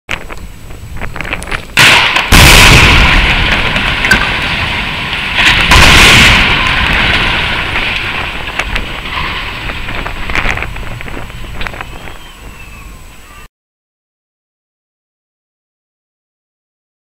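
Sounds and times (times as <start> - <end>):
rumbling collapse: 0.1 - 12.8
falling debris clattering: 1.2 - 12.2
explosive blast: 1.7 - 12.2.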